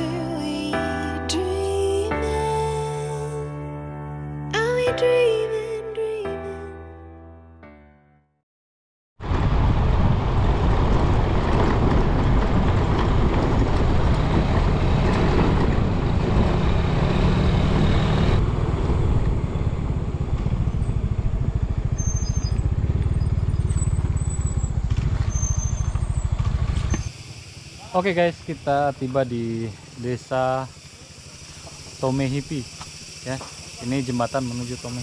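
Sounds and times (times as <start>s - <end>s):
motorbike engine running: 10.8s - 35.0s.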